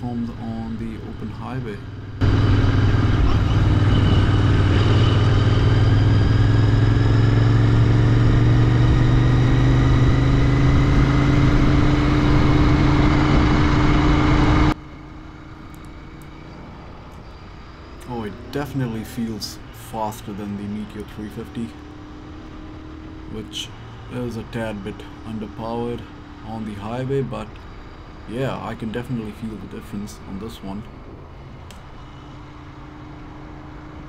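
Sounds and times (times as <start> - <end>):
wind rush: 2.2 - 7.1.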